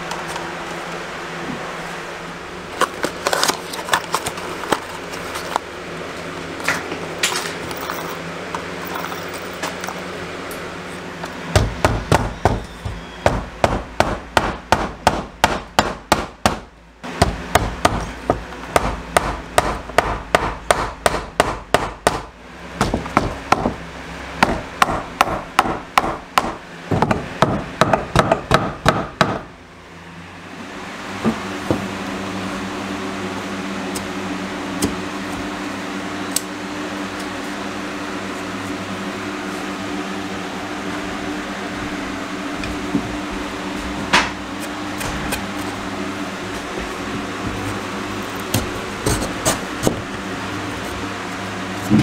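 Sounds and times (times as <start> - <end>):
hammer nailing into wood: 11.5 - 23.8, 24.4 - 29.5.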